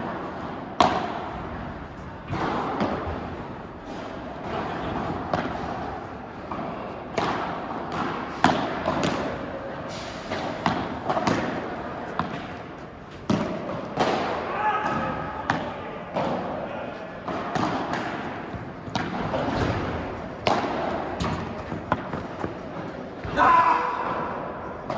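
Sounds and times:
rackets hitting ball: 0.0 - 24.9
ball bouncing on court: 10.4 - 12.6, 17.2 - 23.5.

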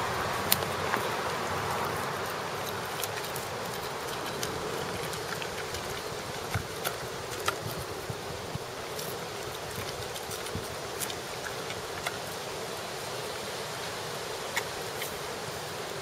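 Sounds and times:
puppy chewing flowers: 0.0 - 13.0
sharp crunching clicks: 2.2 - 12.3.

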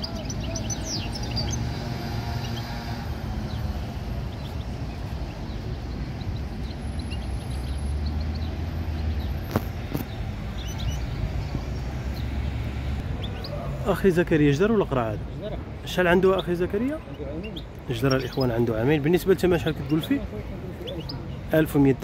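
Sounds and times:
bird chirping: 0.0 - 13.7, 16.0 - 22.0
low traffic rumble: 0.0 - 22.0.

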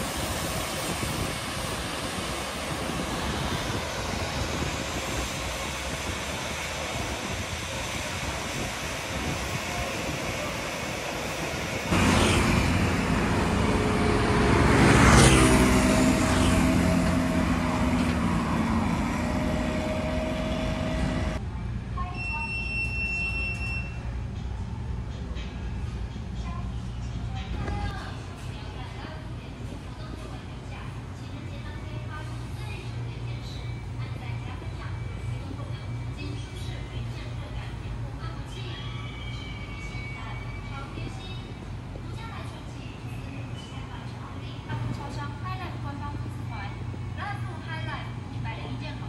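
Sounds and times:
traffic rumble: 0.0 - 21.9
train passing: 0.0 - 22.0, 24.0 - 49.0.

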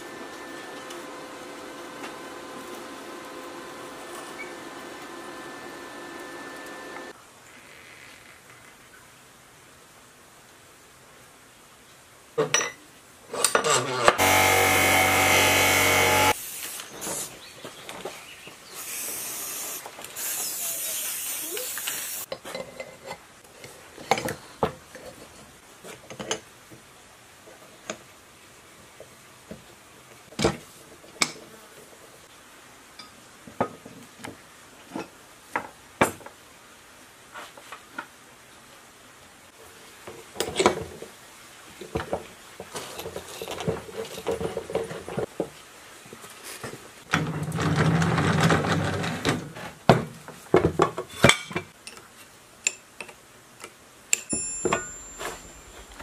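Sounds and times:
spray paint can hissing: 16.4 - 17.3, 18.8 - 22.3.

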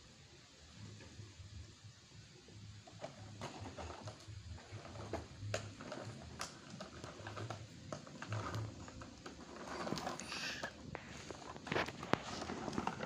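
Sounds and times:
toy trike wheels rolling on concrete: 2.8 - 13.0.

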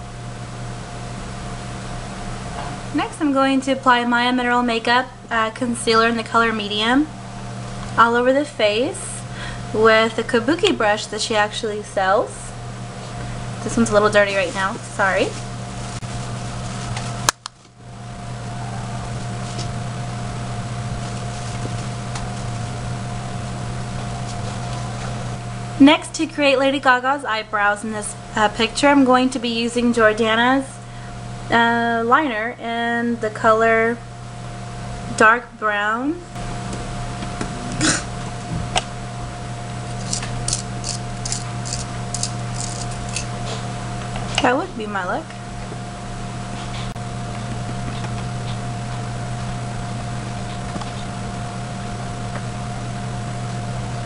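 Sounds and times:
fan hum: 0.0 - 54.0
dry scratching strokes: 21.0 - 21.9.

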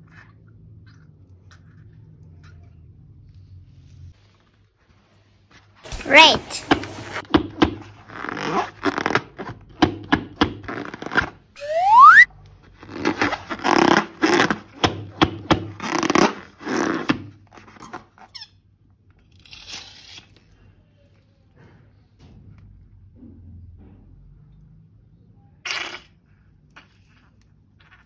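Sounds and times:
slime balloon squishing: 5.9 - 18.4
rubber balloon squeak: 8.0 - 9.5, 10.6 - 18.5.

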